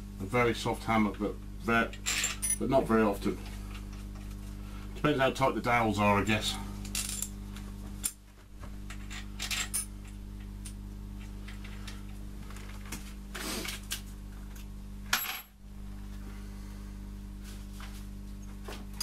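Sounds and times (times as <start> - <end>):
low electrical hum: 0.0 - 19.0.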